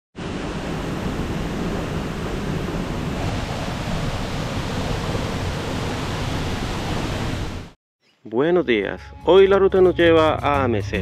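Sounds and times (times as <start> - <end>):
waterfall crashing: 0.2 - 7.8.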